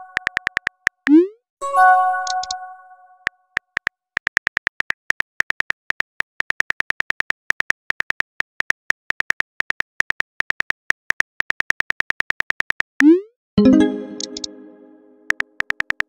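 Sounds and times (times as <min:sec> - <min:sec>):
phone keyboard typing clicks: 0:00.0 - 0:01.0, 0:02.2 - 0:02.6, 0:14.1 - 0:14.6.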